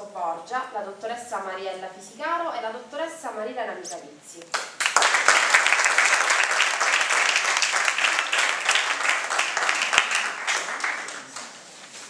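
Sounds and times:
audience applauding: 4.6 - 11.6.

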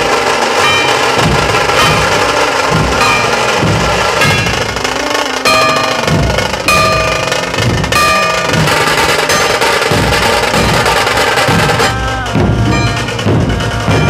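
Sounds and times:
bass drum: 0.0 - 14.0
high held note: 0.0 - 14.0
snare drum rolls: 0.0 - 14.0.

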